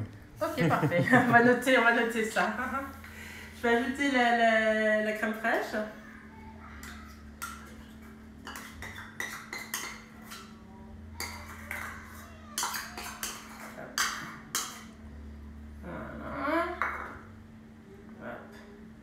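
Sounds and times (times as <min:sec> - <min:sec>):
spoon scraping a metal bowl: 0:06.8 - 0:10.6, 0:11.2 - 0:15.0.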